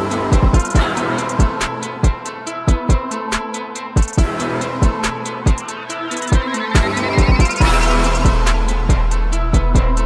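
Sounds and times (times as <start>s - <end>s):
sharp high percussion hits: 4.0s - 10.0s.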